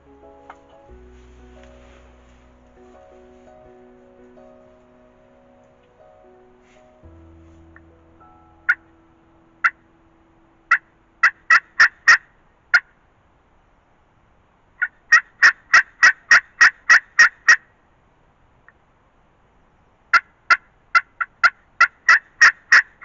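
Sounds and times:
turkey yelps: 0:20.1 - 0:22.9.

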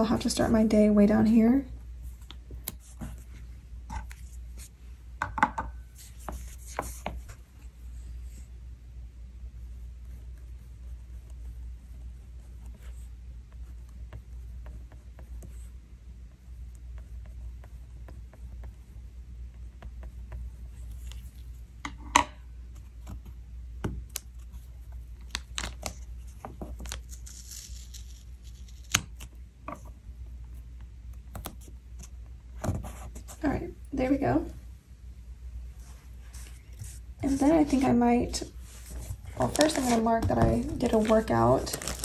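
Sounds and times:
sticker peeling rustle: 0:24.1 - 0:29.4, 0:38.6 - 0:42.0.

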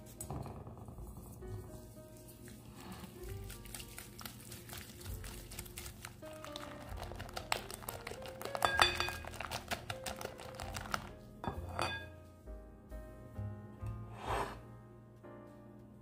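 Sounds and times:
background music: 0:00.0 - 0:16.0
whisk clicking against bowl: 0:03.4 - 0:11.1.

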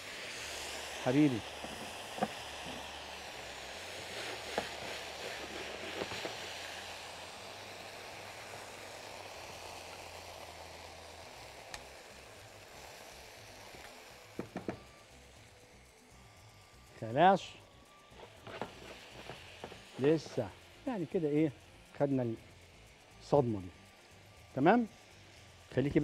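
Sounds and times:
crabs sizzling in oil: 0:00.0 - 0:26.0.

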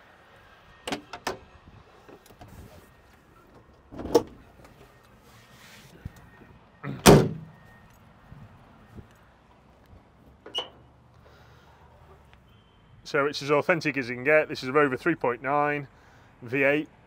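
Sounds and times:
bonnet metal clunks: 0:07.0 - 0:07.6.

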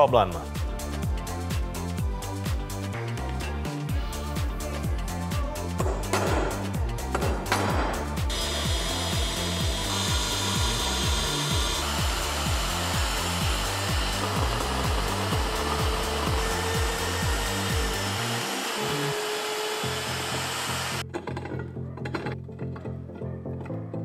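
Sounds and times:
background music with bass line: 0:00.0 - 0:19.2
electric drill boring into steel: 0:08.3 - 0:21.0.

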